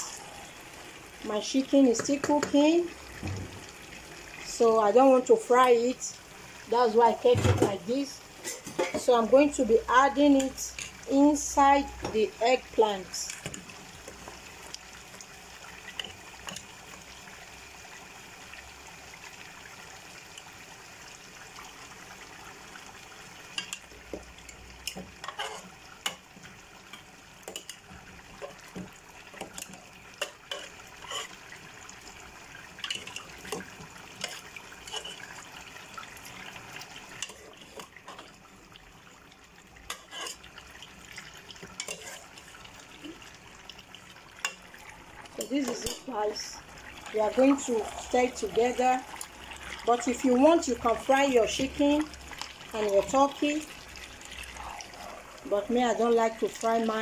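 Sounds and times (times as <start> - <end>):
metal ladle scraping a pot: 25.2 - 25.7, 30.5 - 31.4, 39.9 - 40.4, 41.8 - 42.3.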